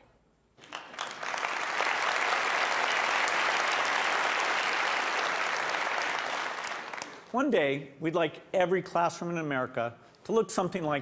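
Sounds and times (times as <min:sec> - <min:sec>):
large audience applauding: 0:00.6 - 0:07.3.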